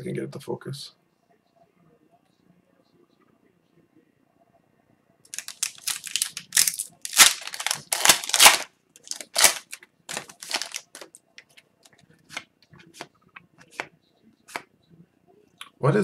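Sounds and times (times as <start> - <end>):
cards sliding out rustling: 5.4 - 11.2
foil wrapper tearing and crinkling: 5.4 - 11.2.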